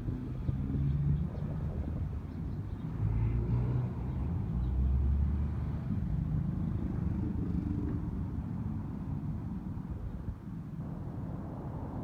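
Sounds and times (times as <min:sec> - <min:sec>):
vehicle rumble with low hum: 0:00.0 - 0:12.0.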